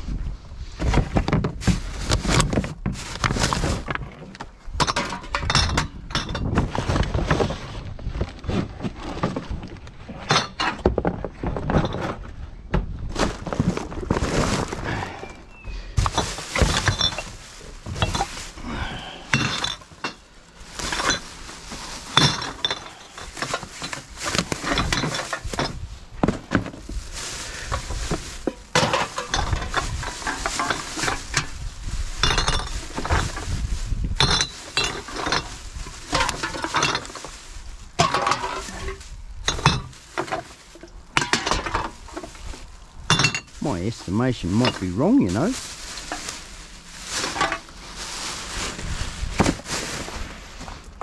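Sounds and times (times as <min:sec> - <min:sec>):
bottles and cans clinking: 0:16.0 - 0:18.4, 0:19.3 - 0:20.2, 0:22.1 - 0:25.8, 0:28.4 - 0:31.5, 0:32.2 - 0:33.4, 0:34.2 - 0:37.2, 0:38.0 - 0:40.5, 0:41.2 - 0:42.3, 0:43.1 - 0:46.3.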